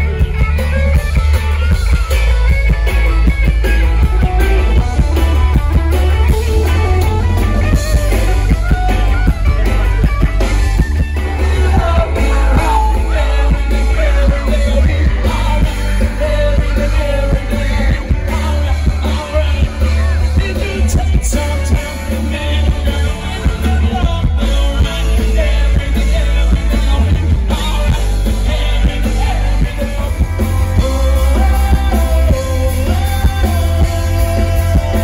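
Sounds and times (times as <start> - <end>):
drums: 0.0 - 35.0
electric guitars: 0.0 - 35.0
heavy bass: 0.0 - 35.0
man singing into microphone: 11.1 - 35.0.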